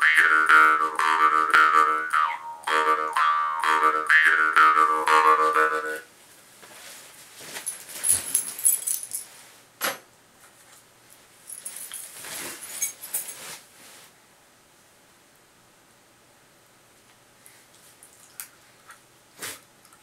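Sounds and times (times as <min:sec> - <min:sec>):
rustling: 0:06.2 - 0:09.6, 0:10.4 - 0:14.2
light metallic jingling: 0:07.5 - 0:09.4, 0:11.4 - 0:13.5.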